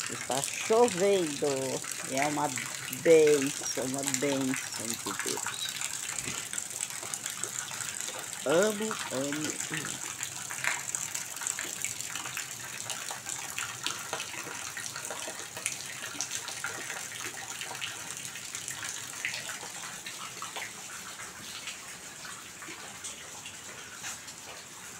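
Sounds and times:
heavy rain falling: 0.0 - 6.6, 8.4 - 10.6
water dripping off roof: 0.0 - 24.9.

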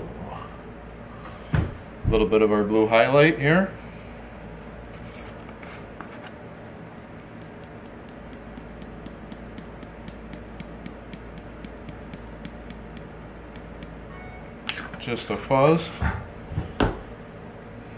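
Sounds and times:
steady low hum: 0.0 - 17.9
plastic jar tapping: 6.8 - 14.0.

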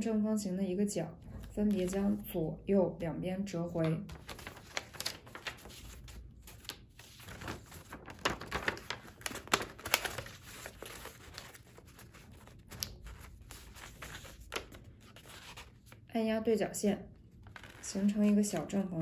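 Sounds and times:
paper rustling and crinkling: 1.3 - 2.4, 3.8 - 16.1, 17.4 - 18.8.

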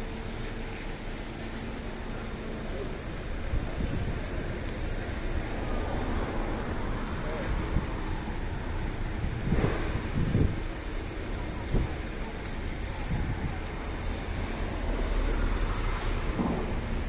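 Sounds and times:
cars passing: 0.0 - 17.0
wind rumbling on microphone: 3.1 - 15.0.

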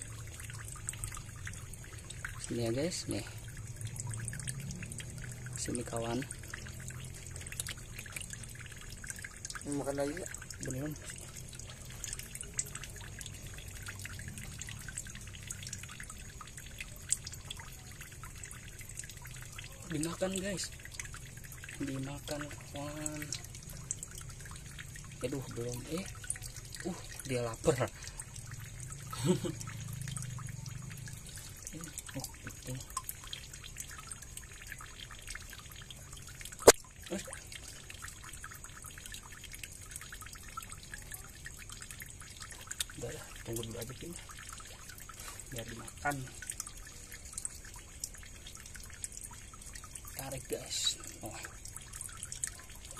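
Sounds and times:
water drips: 0.0 - 52.9
water trickling over rocks: 0.0 - 52.9
small plop: 36.5 - 37.3.

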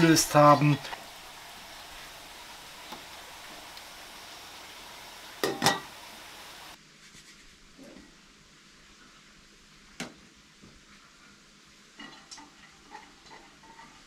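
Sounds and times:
faint steady hiss: 0.0 - 14.0
utensil clinking on metal pot: 5.4 - 5.9.

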